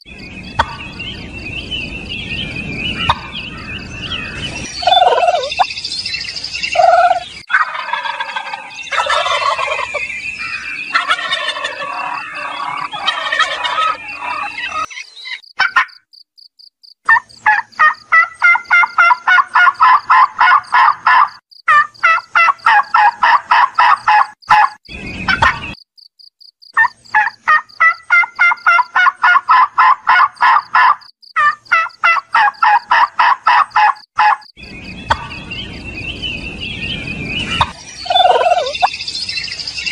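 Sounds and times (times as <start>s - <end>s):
turkeys gobbling: 0.6s - 0.8s, 3.1s - 3.4s, 4.8s - 5.7s, 6.8s - 10.0s, 10.9s - 15.0s, 15.6s - 15.9s, 17.1s - 25.7s, 26.8s - 34.5s, 35.1s - 35.4s, 37.5s - 38.9s.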